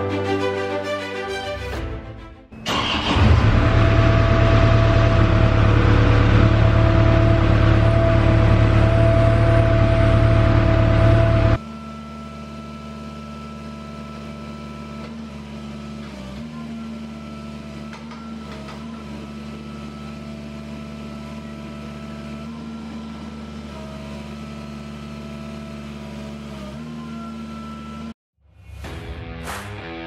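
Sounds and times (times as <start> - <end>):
hydraulic whine: 2.6 - 20.7
excavator engine running: 2.6 - 28.1.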